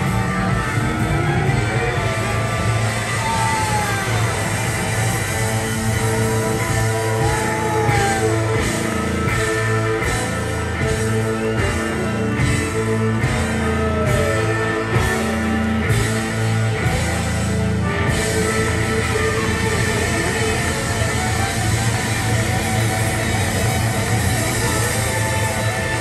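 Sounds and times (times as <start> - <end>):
blues-rock band playing: 0.0 - 26.0.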